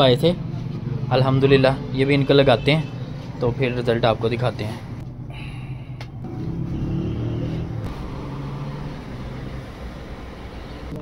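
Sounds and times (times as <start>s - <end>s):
faint hum: 5.0s - 6.2s.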